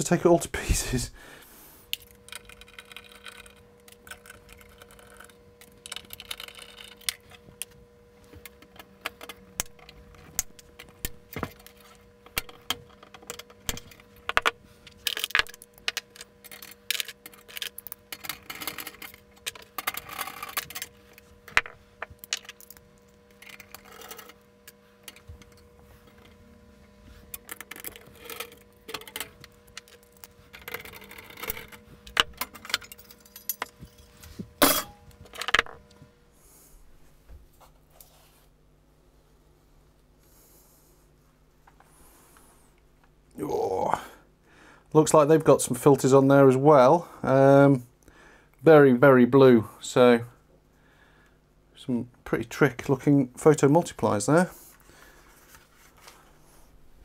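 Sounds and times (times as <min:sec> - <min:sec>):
faint steady hum: 0:00.0 - 0:57.0
metal parts and tools clinking: 0:27.3 - 0:35.7.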